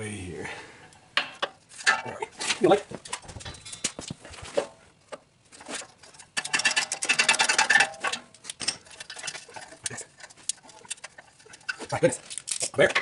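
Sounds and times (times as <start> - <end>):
metal clicks and scrapes: 3.0 - 13.0.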